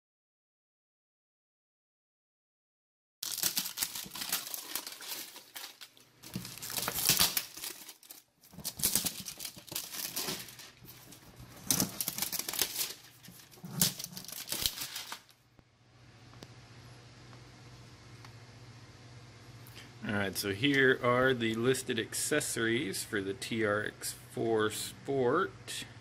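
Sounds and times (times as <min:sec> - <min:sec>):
plastic wrap crinkling and tearing: 0:03.2 - 0:15.4.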